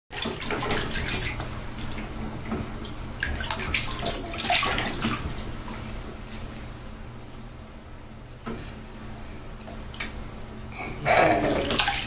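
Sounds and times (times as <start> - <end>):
water splashing in baby bathtub: 0.1 - 5.9, 9.6 - 12.0.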